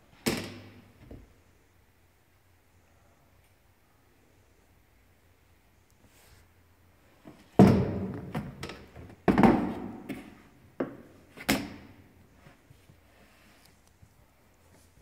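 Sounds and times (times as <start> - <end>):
plastic box thunks: 7.6 - 10.2.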